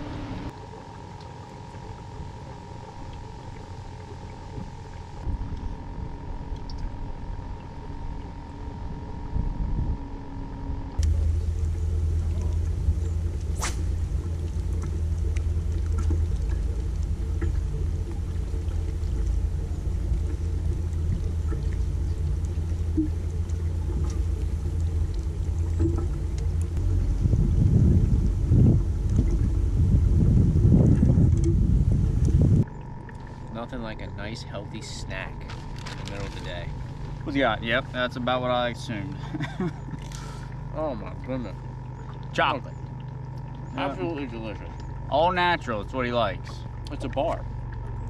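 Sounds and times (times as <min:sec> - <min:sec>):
steady high hum: 0:00.0 - 0:48.0
wind rumbling on microphone: 0:01.7 - 0:34.1.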